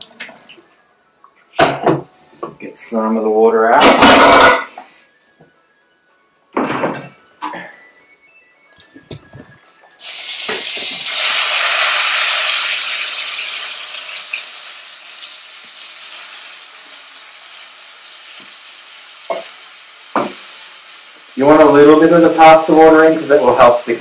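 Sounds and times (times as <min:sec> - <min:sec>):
water sizzling in hot pan: 0:09.8 - 0:24.0.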